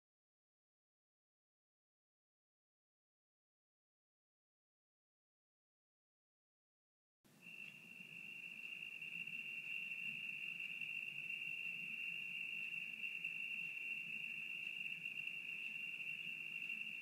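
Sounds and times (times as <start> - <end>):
crickets chirping: 7.3 - 17.0.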